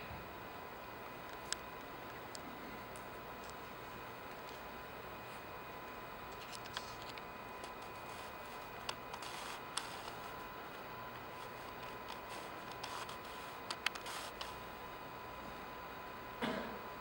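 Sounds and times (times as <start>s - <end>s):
faint hum: 0.0s - 17.0s
steady hiss: 0.0s - 17.0s.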